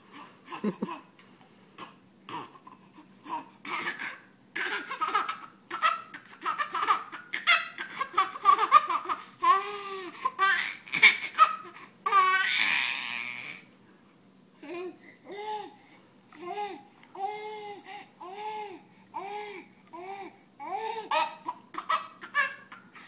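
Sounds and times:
baby laughing: 3.3 - 12.8, 20.6 - 23.0.

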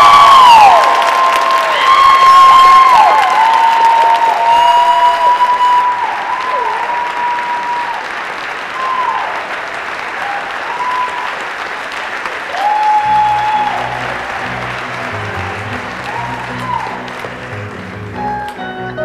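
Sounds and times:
audience applauding: 0.0 - 18.7
low rhythmic band music: 13.1 - 19.0.

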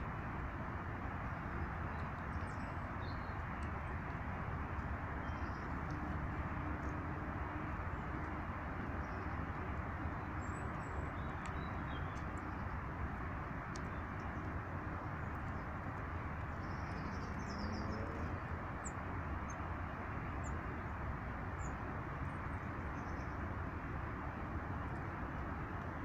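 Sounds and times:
small birds chirping: 1.5 - 7.0, 7.7 - 23.6.

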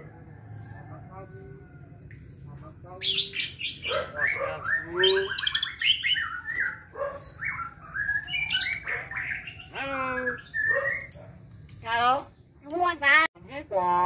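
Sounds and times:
myna bird calling: 3.0 - 13.3.

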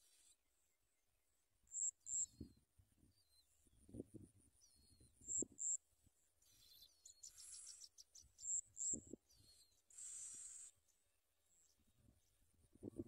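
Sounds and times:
nestlings chirping and peeping: 6.4 - 11.0.

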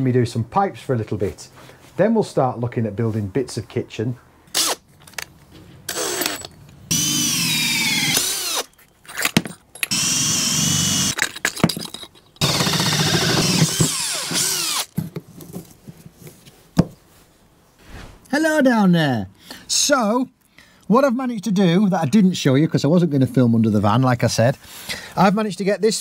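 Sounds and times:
drill with hole saw cutting wood: 5.9 - 8.7, 9.9 - 11.2, 12.4 - 14.9.

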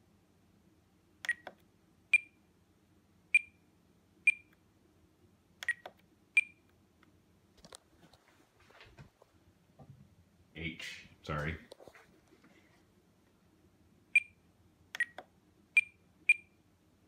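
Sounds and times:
short high transmitter beeps: 15.8 - 16.6.

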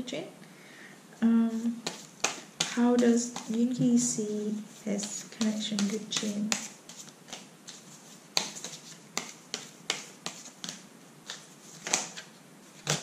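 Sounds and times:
cards being shuffled: 1.5 - 4.0, 4.9 - 13.0.

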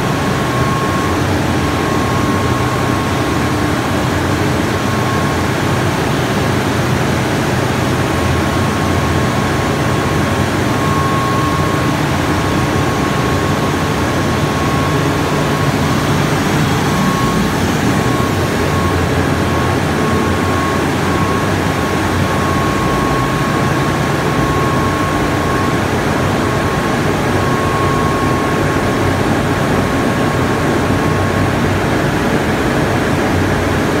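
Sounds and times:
pumps humming: 0.0 - 31.0.

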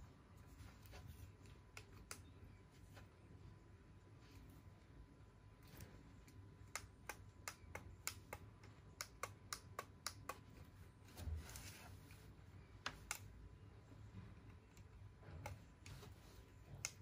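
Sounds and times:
soft rustle: 0.0 - 1.6, 10.8 - 12.7.

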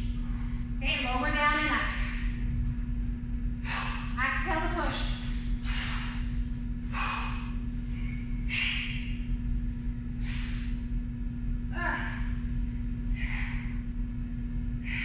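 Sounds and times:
woman breathing hard: 3.5 - 4.2, 5.1 - 11.1, 11.8 - 15.0.

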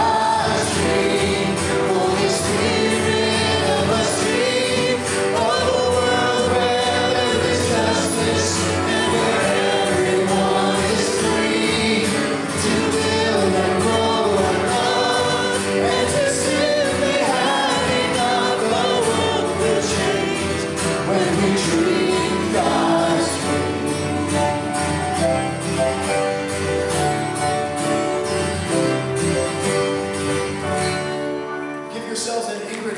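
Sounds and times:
male lead singer: 0.0 - 24.7
congregation singing: 0.0 - 32.7
guitar: 0.0 - 32.9
piano: 0.0 - 32.9.

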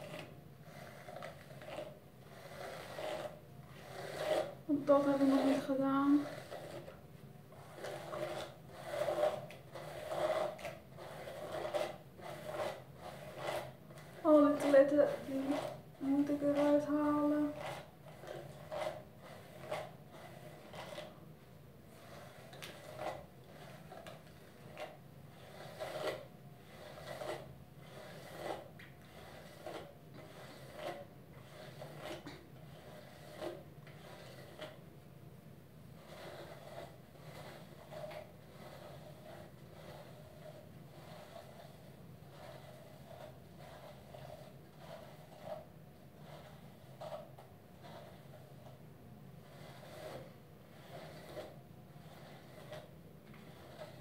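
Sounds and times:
hairbrush swishing through hair: 0.0 - 21.2, 21.8 - 34.8, 35.9 - 48.8, 49.4 - 54.0.

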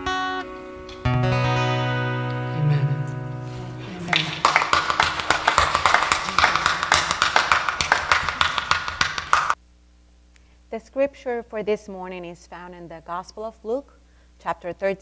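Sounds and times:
acoustic guitar chord ringing: 0.0 - 4.5
people clapping: 3.4 - 9.6.

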